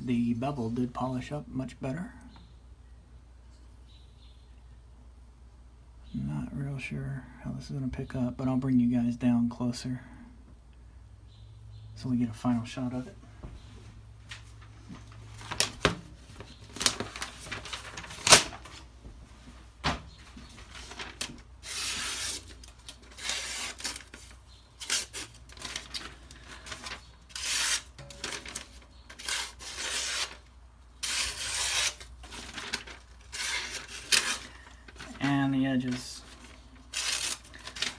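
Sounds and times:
knife slicing paper: 0:20.8 - 0:35.2, 0:35.9 - 0:37.9.

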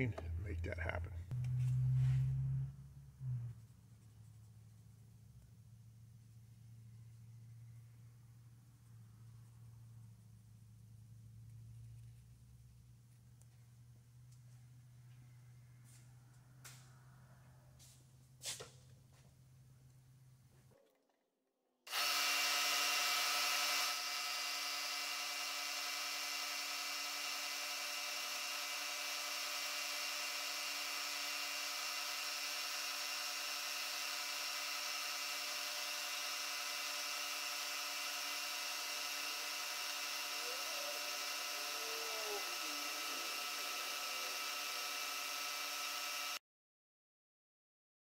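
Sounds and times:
faint wavering tone: 0:01.3 - 0:03.6
milling machine whining: 0:21.9 - 0:46.4.

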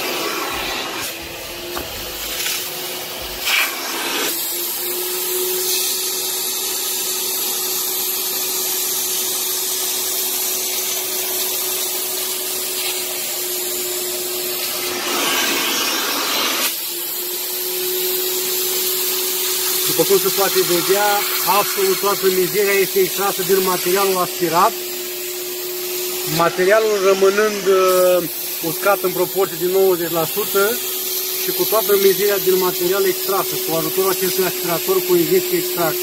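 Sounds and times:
suction hiss: 0:00.0 - 0:36.0
vacuum motor hum: 0:00.0 - 0:36.0.

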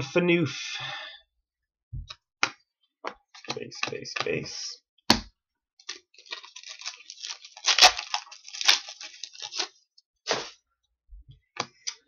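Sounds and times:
wrapper crinkling: 0:05.8 - 0:09.9
card pack wrapper tearing: 0:05.8 - 0:10.5.

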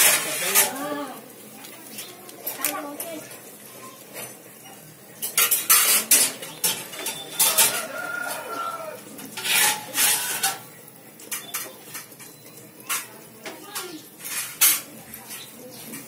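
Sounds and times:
steel kitchenware clinking: 0:00.0 - 0:00.9, 0:02.0 - 0:16.0
rooster crowing: 0:07.2 - 0:09.2.

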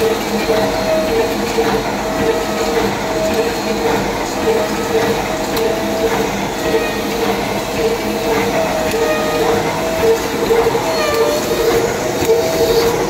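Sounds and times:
machine clattering rhythmically: 0:00.0 - 0:13.0.

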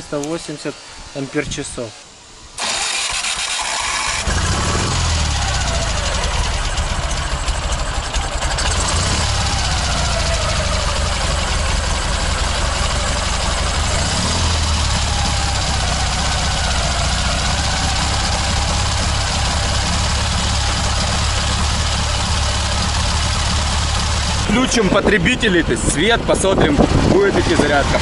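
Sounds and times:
engine idling: 0:02.6 - 0:28.0.

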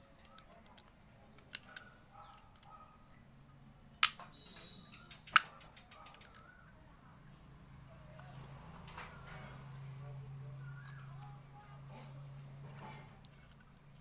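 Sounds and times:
plastic clicks: 0:00.2 - 0:02.8, 0:04.0 - 0:06.5.

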